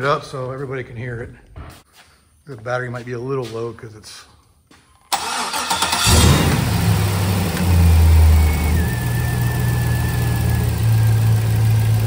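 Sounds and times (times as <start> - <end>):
engine idling: 5.2 - 12.0.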